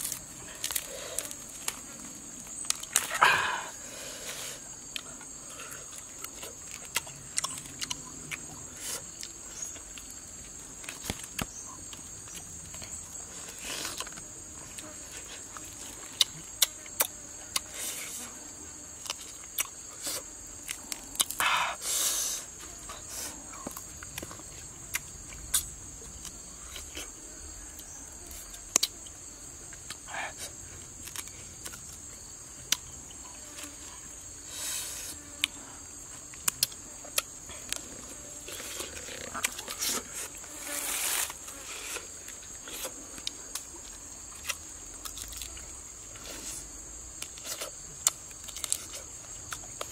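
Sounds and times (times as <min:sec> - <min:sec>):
insects droning: 0:00.0 - 0:49.9
chewing and smacking: 0:04.9 - 0:08.6, 0:42.6 - 0:46.5, 0:47.2 - 0:49.9
crunching: 0:36.3 - 0:49.9.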